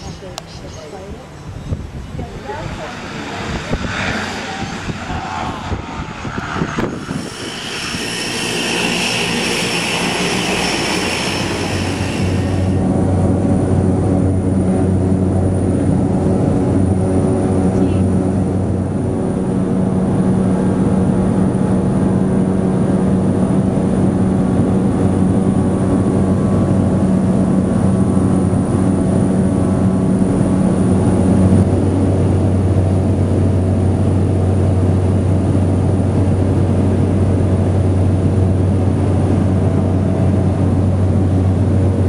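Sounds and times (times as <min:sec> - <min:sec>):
propeller plane engine drone: 0:00.0 - 0:42.0.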